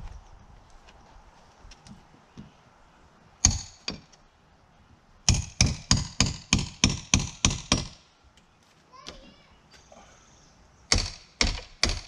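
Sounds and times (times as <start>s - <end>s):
hammer hitting a nail: 3.4s - 4.1s, 5.3s - 8.0s, 10.9s - 12.0s.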